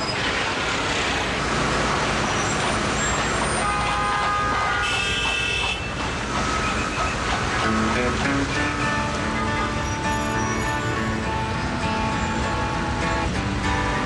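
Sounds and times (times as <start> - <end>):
city street traffic: 0.0 - 14.0
car horns honking: 3.4 - 11.2.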